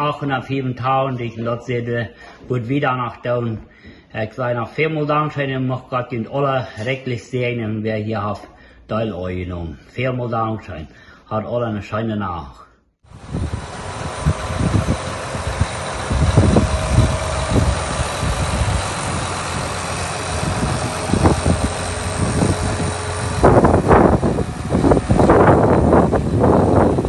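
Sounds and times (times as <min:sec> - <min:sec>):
tractor diesel engine idling: 0:13.2 - 0:27.0.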